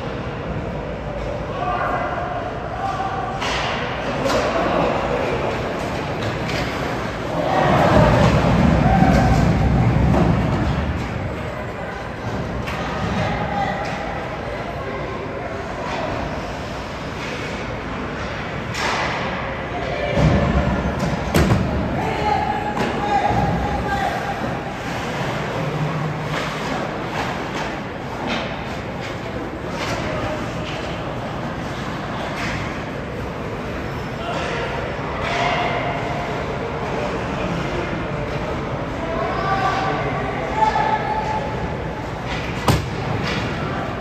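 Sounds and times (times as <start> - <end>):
crowd chatter: 0.0 - 44.0
thuds against rink boards: 42.6 - 43.5.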